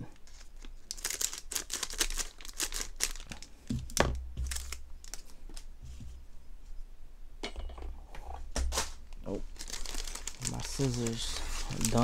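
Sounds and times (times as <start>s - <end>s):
foil wrapper crinkling: 0.2s - 5.7s, 8.8s - 12.0s.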